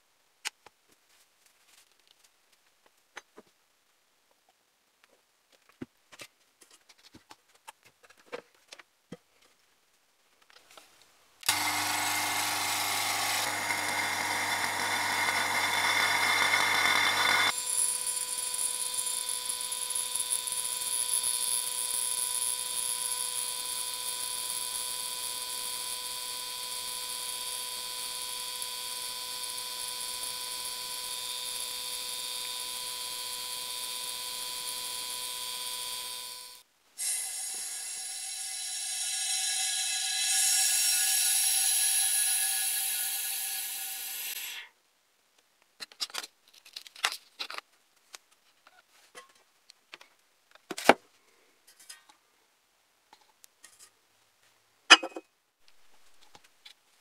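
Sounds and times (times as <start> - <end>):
vacuum pump running: 11.4 - 20.8.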